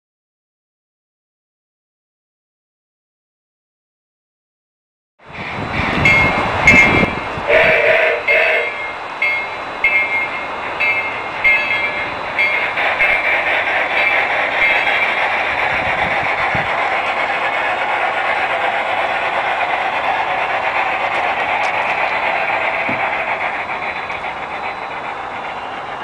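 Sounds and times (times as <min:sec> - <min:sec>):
model locomotive running hum: 0:05.2 - 0:26.0.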